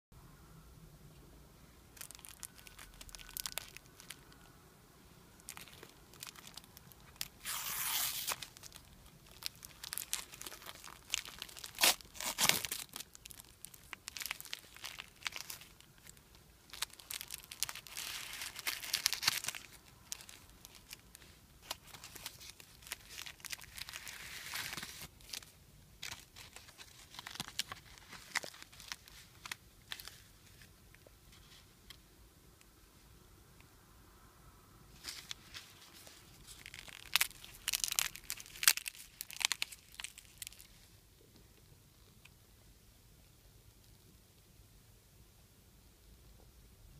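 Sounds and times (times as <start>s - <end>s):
plastic film crinkling: 2.0s - 4.5s, 5.4s - 30.7s, 35.0s - 40.9s
plastic film snapping: 5.4s - 25.4s.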